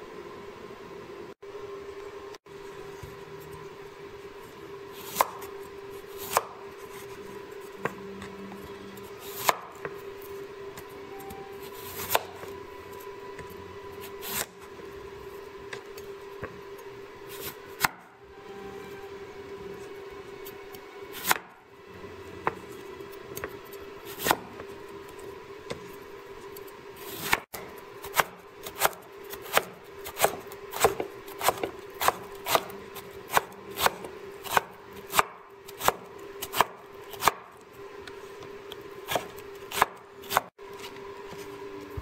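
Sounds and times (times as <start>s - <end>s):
faint steady hum: 0.0s - 42.0s
cleaver chopping on wooden board: 27.2s - 32.7s.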